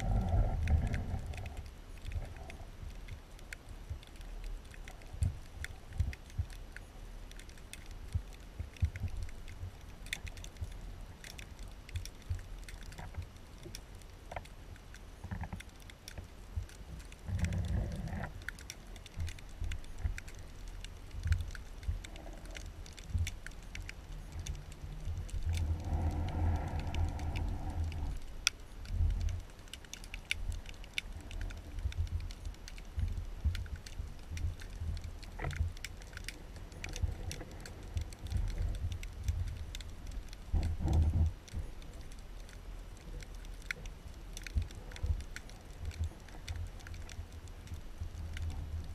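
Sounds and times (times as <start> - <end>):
low underwater knocks and rumble: 0.0 - 4.2, 30.4 - 42.6
underwater clicks and crackles: 0.0 - 48.9.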